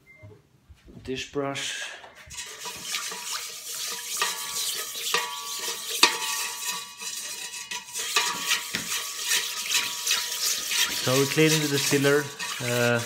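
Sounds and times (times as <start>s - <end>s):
brush knocking steel wall: 2.3s - 13.0s
brush scrubbing steel: 2.3s - 13.0s.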